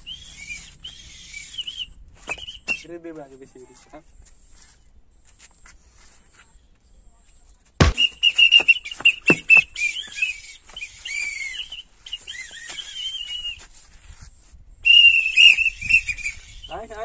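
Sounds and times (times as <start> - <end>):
stick striking bare back: 7.8 - 9.7.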